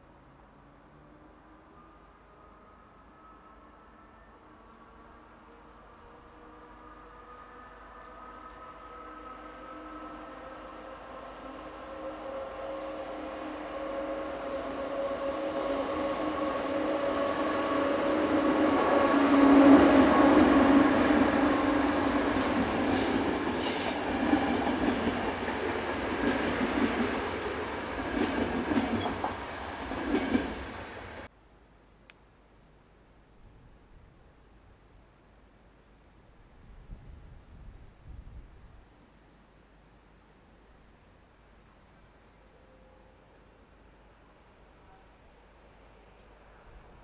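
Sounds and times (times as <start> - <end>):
train passing: 0.6 - 31.3.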